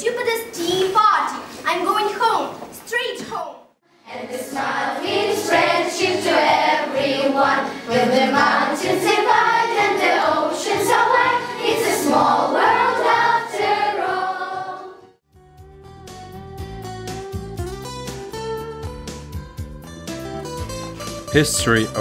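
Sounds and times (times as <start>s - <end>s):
girls singing in chorus: 4.0s - 15.1s.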